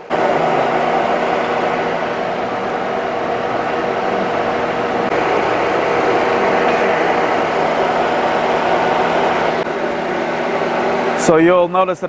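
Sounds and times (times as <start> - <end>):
faint drone: 0.0 - 11.4
machinery humming and hissing: 0.0 - 12.0.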